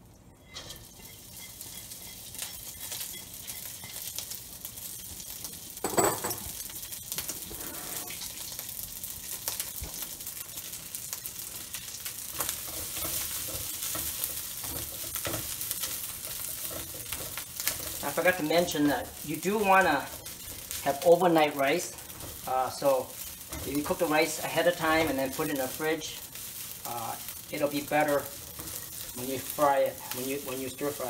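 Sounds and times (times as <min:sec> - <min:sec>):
rice sizzling in hot oil: 0:00.0 - 0:31.0
spatula scraping wok: 0:00.4 - 0:04.4, 0:07.3 - 0:08.4, 0:12.3 - 0:31.0.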